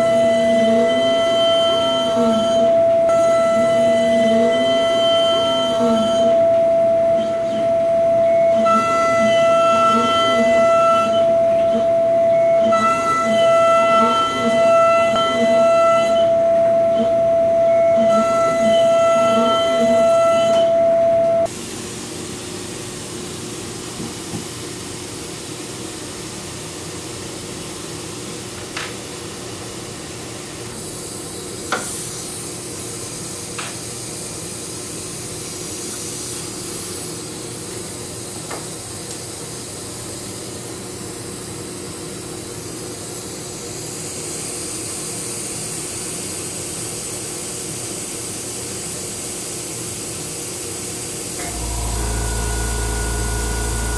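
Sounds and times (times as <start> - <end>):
mill spindle cutting metal whine: 51.4 - 53.9.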